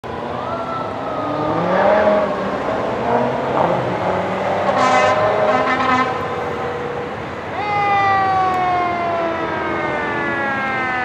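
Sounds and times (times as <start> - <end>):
fire engine siren: 0.1 - 2.7, 4.7 - 11.0
air horn blasts: 4.7 - 6.4.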